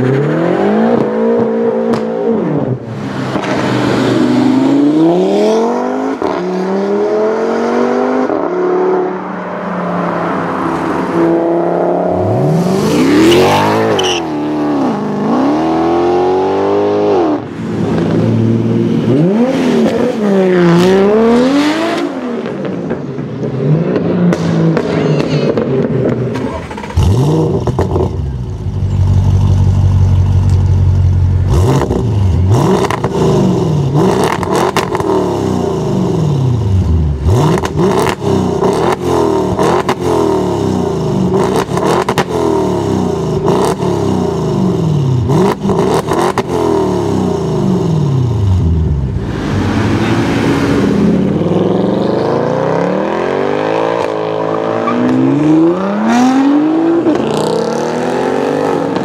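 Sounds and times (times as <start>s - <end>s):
car engine revving: 0.0s - 59.0s
car accelerating hard: 31.5s - 59.0s.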